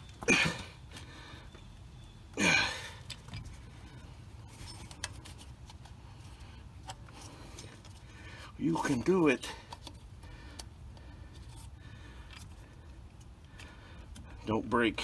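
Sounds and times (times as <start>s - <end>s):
man straining breaths and grunt: 0.2s - 1.2s, 2.3s - 3.1s.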